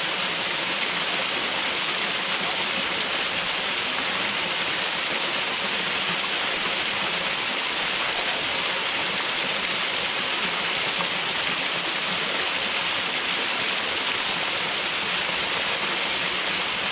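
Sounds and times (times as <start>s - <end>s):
waterfall splashing: 0.0s - 16.9s.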